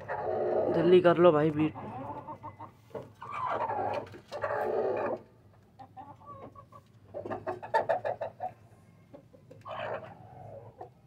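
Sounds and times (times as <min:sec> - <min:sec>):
chicken clucking: 0:00.0 - 0:11.0.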